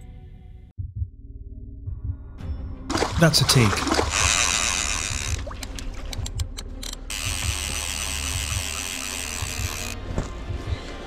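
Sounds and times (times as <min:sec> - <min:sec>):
fishing reel buzzing: 0:04.0 - 0:05.8, 0:07.1 - 0:10.0.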